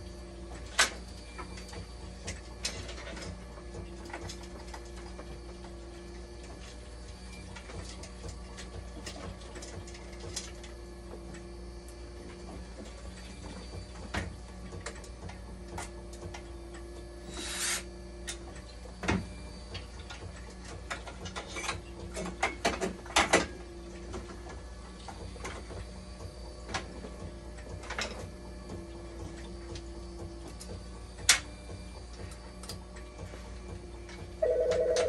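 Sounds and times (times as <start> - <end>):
machine hum: 23.0 - 35.0.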